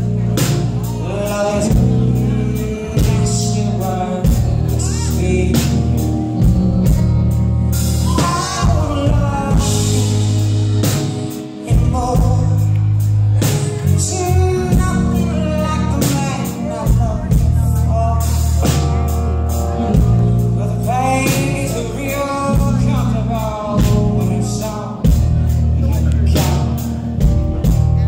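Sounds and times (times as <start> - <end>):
drum kit: 0.0 - 28.0
electric bass: 0.0 - 28.0
piano: 0.0 - 28.0
woman singing: 8.0 - 10.0.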